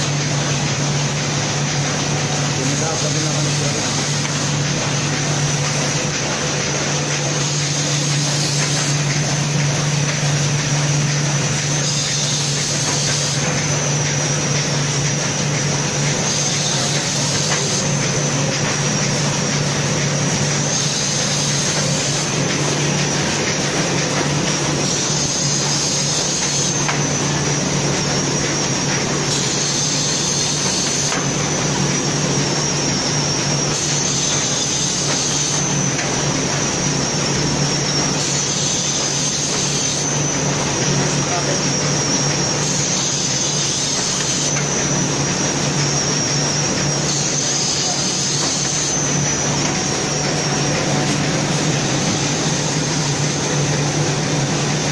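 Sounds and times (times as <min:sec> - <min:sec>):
binding machine humming and whining: 0:00.0 - 0:54.9
machine hiss: 0:00.0 - 0:54.9.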